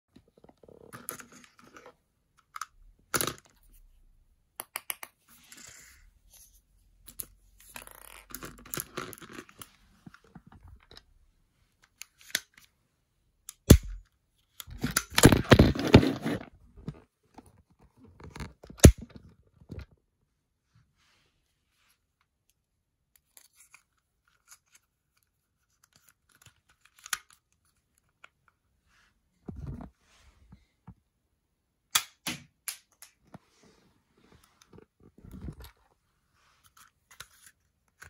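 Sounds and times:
sharp plastic snap: 31.9s - 33.2s.

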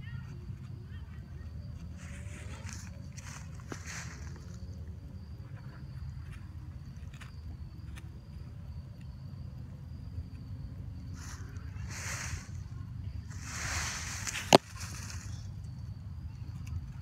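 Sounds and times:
constant low rumble: 0.0s - 17.0s
crickets trilling: 0.0s - 17.0s
rustle of dry leaves: 1.8s - 5.0s, 10.9s - 16.7s.

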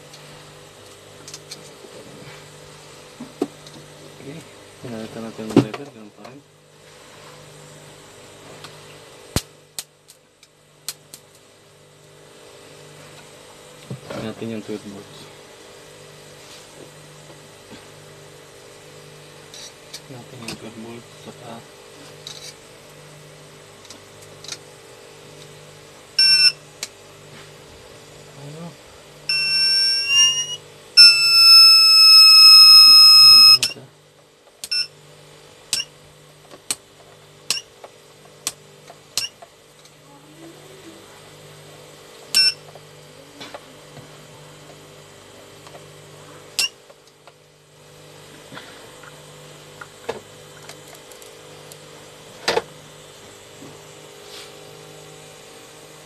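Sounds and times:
inverter alarm buzzer: 26.2s - 26.7s, 29.2s - 33.8s, 34.6s - 35.0s, 42.3s - 42.7s, 46.6s - 46.8s.

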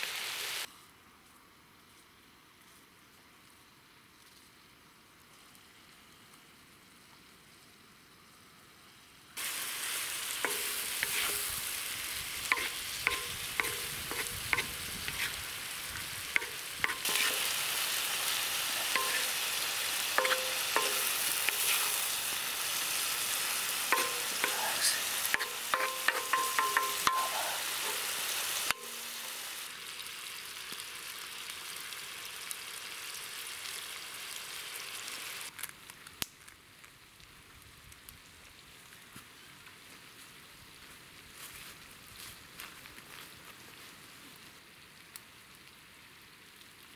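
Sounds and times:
meat sizzling in a pan: 0.0s - 0.7s, 9.4s - 35.7s
wooden spatula scraping steel: 10.4s - 11.6s, 12.5s - 15.4s, 16.4s - 17.5s, 18.8s - 19.4s, 20.2s - 22.2s, 23.9s - 29.0s.

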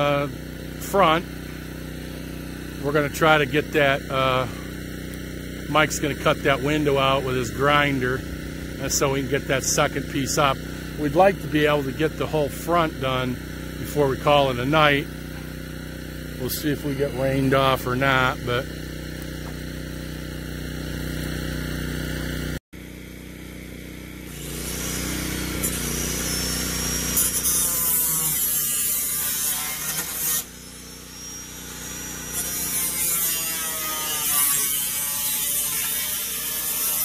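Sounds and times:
steady low hum: 0.0s - 21.4s
angle grinder cutting: 0.0s - 37.0s.

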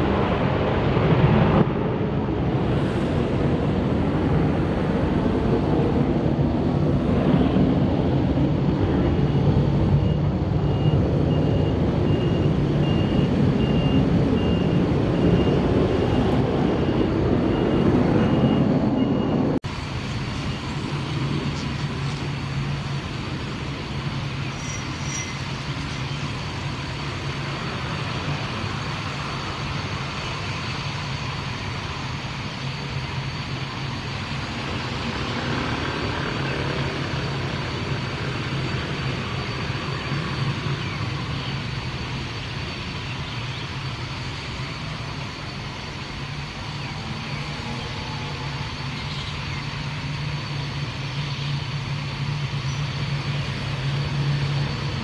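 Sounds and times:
low engine drone: 0.0s - 55.0s.

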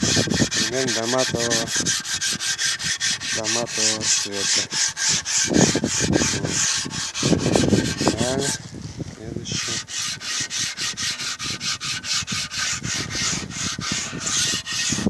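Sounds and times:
hand-sanding wood: 0.0s - 8.6s, 9.4s - 15.0s.

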